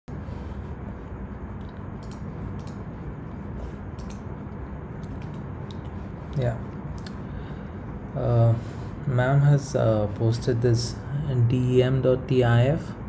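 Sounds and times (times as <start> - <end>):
room hum and microphone hiss: 0.1 - 13.0
computer clicks: 1.6 - 2.8, 4.0 - 4.3, 5.0 - 5.9.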